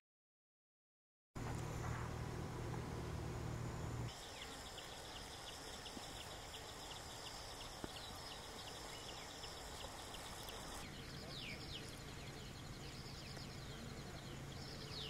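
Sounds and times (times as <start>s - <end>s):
low steady rumble: 1.4s - 8.7s
insects chirping: 1.4s - 15.0s
soft outdoor hiss: 1.4s - 15.0s.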